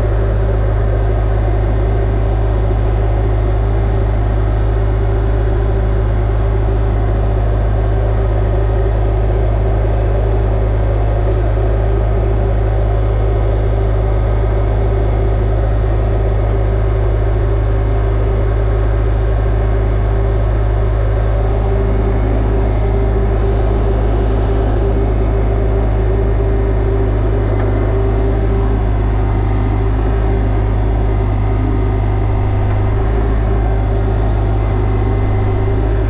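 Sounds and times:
low machine hum: 0.0s - 36.0s
constant high tone: 20.4s - 36.0s.

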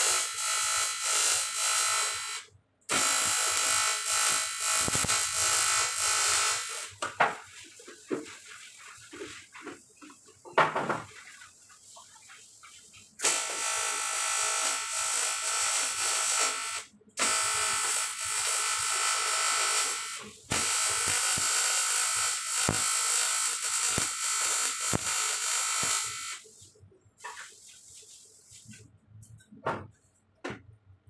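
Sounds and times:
welding arc buzzing: 0.0s - 7.4s, 13.2s - 26.6s.

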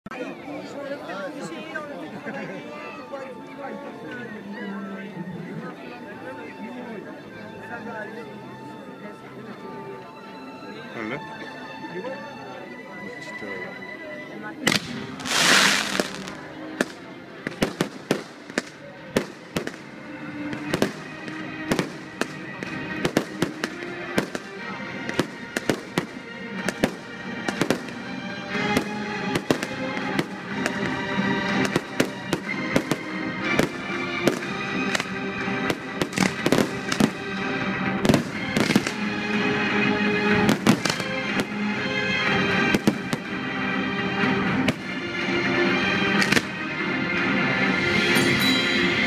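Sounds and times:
music playing: 0.1s - 49.0s
fireworks bursts and bangs: 14.6s - 37.4s, 38.0s - 39.1s, 40.3s - 41.6s, 42.3s - 43.4s, 46.2s - 46.6s.

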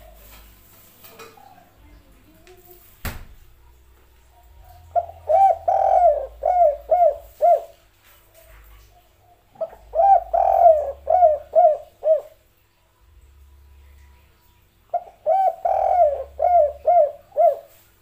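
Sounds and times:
dove cooing: 4.6s - 7.8s, 8.8s - 12.4s, 14.9s - 17.8s.

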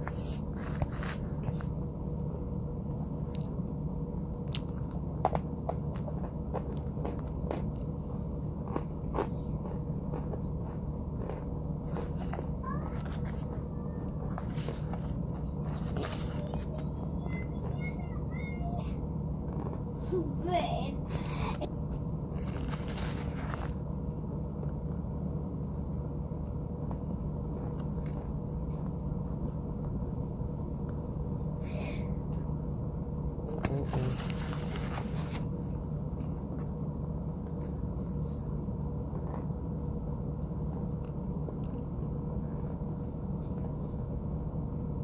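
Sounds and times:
noisy puffs and scrapes: 0.0s - 1.9s, 11.8s - 17.1s, 20.8s - 24.0s, 33.5s - 35.9s
steady low hum: 0.0s - 45.0s
person chewing: 3.0s - 16.7s, 19.4s - 20.0s, 21.1s - 23.8s.

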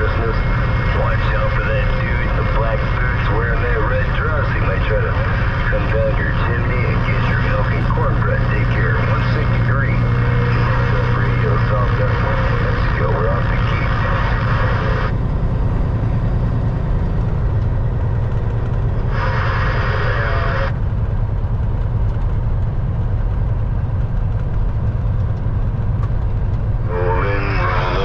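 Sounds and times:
radio static hiss: 0.0s - 15.1s, 19.0s - 20.8s, 26.9s - 28.0s
truck diesel engine drone: 0.0s - 28.0s.

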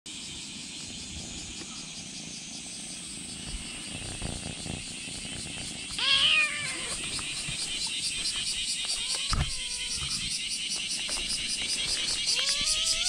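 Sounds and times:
insects chirring: 0.1s - 13.0s
kitten meowing: 6.0s - 7.0s, 8.9s - 10.2s, 12.3s - 13.0s.

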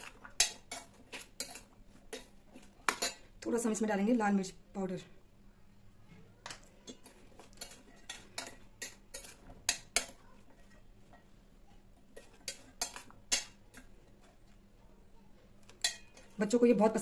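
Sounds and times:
spoon clinking and scraping in metal bowl: 0.0s - 3.8s, 6.5s - 14.6s, 15.6s - 17.0s.

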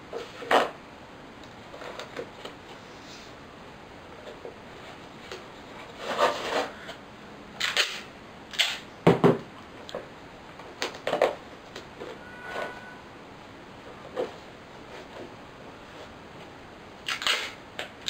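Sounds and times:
tape ripping: 17.0s - 17.6s.

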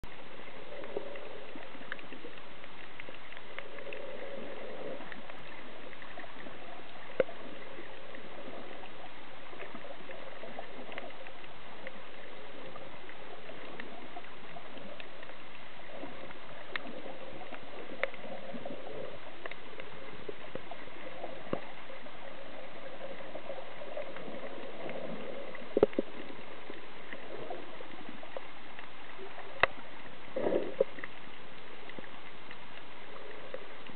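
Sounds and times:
low gurgling swirls: 0.0s - 33.9s
sharp underwater clicks: 0.1s - 33.9s
underwater hiss: 3.0s - 31.9s.

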